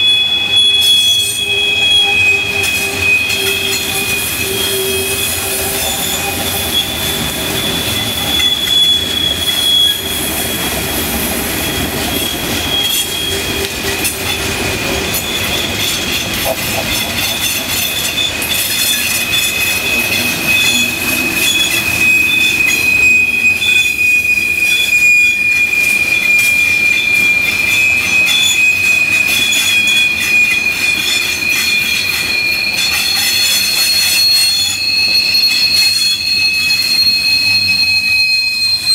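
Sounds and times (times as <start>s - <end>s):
rumble of rolling train cars: 0.0s - 38.9s
train wheels squealing: 0.0s - 38.9s.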